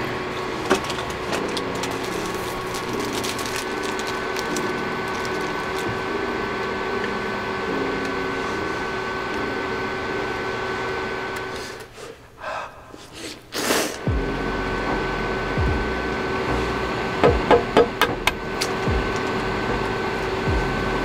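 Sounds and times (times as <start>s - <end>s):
broth boiling and bubbling: 0.0s - 11.3s.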